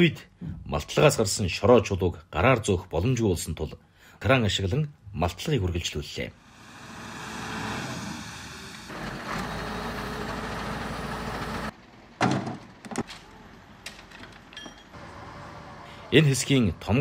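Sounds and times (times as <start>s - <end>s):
crane engine running: 6.4s - 11.7s, 15.0s - 17.0s.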